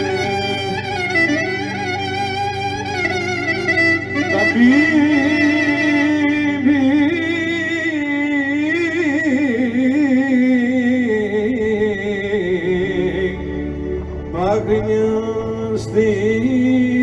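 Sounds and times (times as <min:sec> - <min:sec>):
electronic keyboard accompaniment: 0:00.0 - 0:17.0
man singing folk melody: 0:04.2 - 0:13.5.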